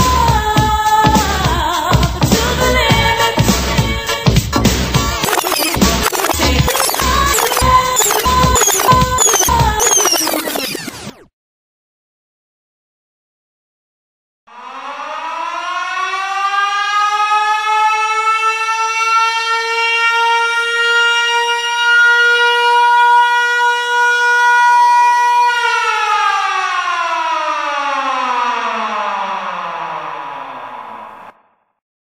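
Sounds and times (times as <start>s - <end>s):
siren wailing: 5.2s - 11.3s, 14.5s - 31.5s.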